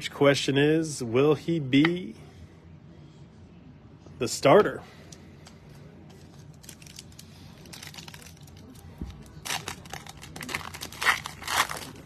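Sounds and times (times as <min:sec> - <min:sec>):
foil wrapper tearing: 0:06.5 - 0:12.0.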